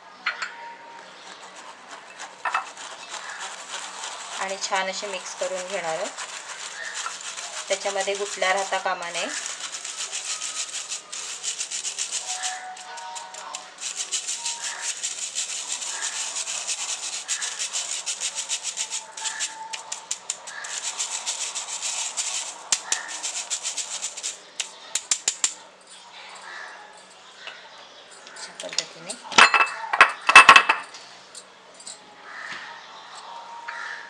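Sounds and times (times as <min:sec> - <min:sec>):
whisk rasping on mesh sieve: 0:01.0 - 0:25.6.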